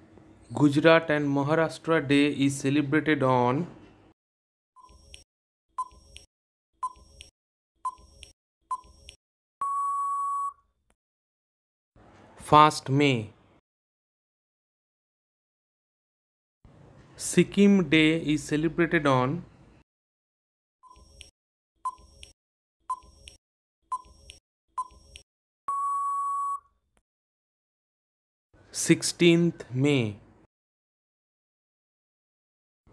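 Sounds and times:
steady timer beep: 0:05.8 - 0:10.6, 0:20.8 - 0:26.6
long steady beep: 0:09.6 - 0:10.6, 0:25.7 - 0:26.7.

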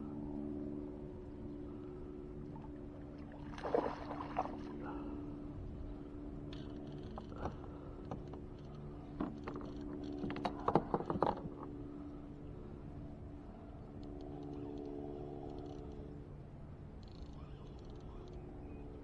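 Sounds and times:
low boat motor hum: 0:00.0 - 0:19.0
water splashing against hull: 0:02.4 - 0:05.3.

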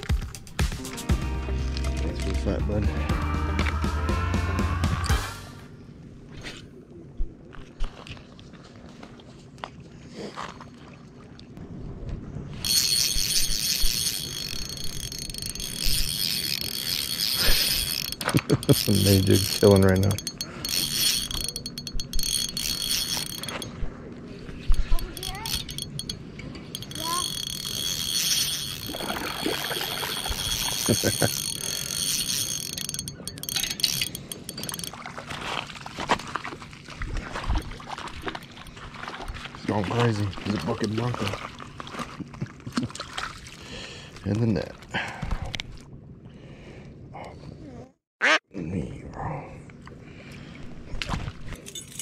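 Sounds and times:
spinning reel clicking fast: 0:12.6 - 0:23.7, 0:25.0 - 0:34.9.

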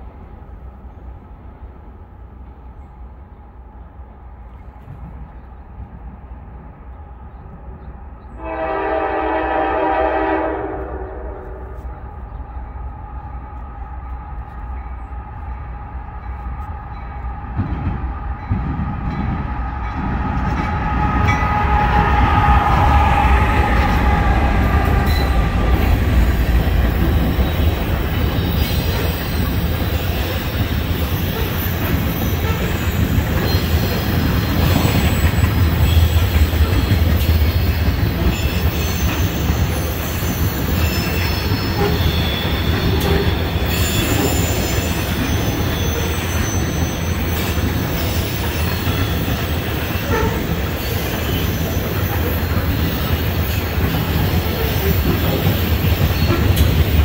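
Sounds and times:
train rumble: 0:00.0 - 0:57.0
train horn chord: 0:08.4 - 0:11.9
train wheels clattering: 0:16.3 - 0:57.0
high wheel squeals: 0:27.0 - 0:57.0.

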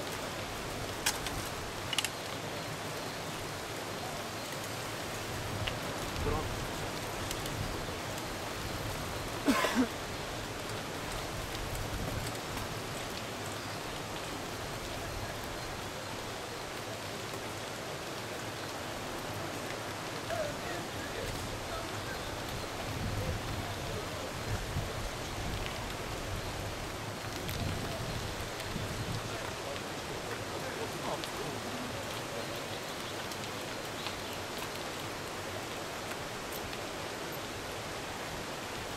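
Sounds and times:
faint clicks: 0:01.0 - 0:02.4.

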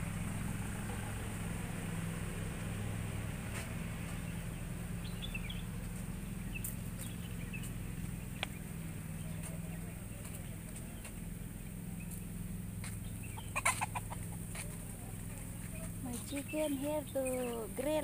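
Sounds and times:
low machine hum: 0:00.0 - 0:13.6, 0:14.2 - 0:18.0
high bird chirps: 0:13.0 - 0:13.9.

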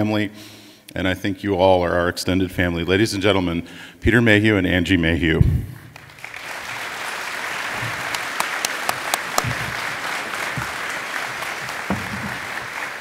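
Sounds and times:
audience applauding: 0:05.9 - 0:13.0
sharp close claps: 0:05.9 - 0:13.0.

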